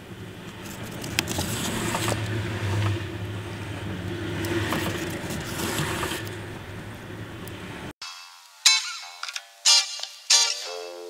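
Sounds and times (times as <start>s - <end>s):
thread scraping through leather: 0.6s - 3.0s, 4.5s - 6.3s.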